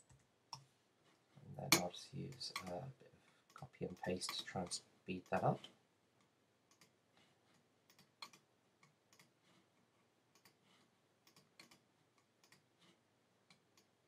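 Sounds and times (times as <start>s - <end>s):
mouse and keyboard clicks: 6.2s - 9.3s, 11.2s - 12.6s.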